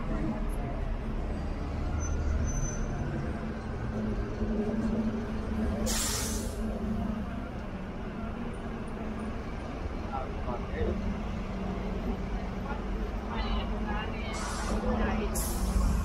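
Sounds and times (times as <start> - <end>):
large vehicle engine humming: 0.0 - 16.0
air brakes hissing: 5.8 - 6.6, 14.3 - 16.0.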